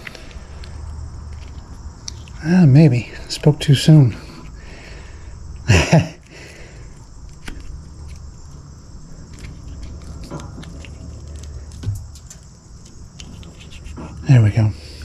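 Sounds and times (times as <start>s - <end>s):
steady low hum: 0.0s - 15.0s
rubber rubbing on cable: 9.3s - 14.3s.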